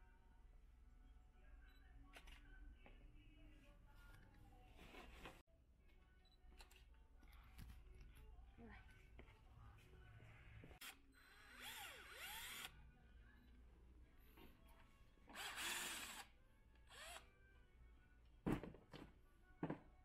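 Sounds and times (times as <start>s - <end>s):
cordless drill driving screws: 10.8s - 12.7s, 15.3s - 16.3s, 16.9s - 17.2s.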